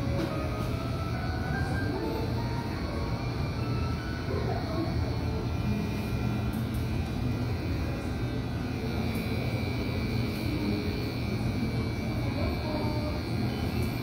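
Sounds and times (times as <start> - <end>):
electric hair clipper buzzing: 4.6 - 14.0.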